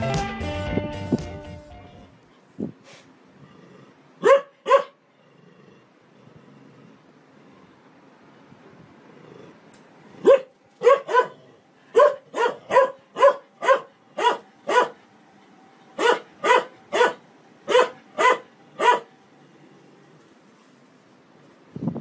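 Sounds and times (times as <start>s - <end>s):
dog barking: 4.2s - 5.0s, 10.2s - 15.0s, 16.0s - 19.1s.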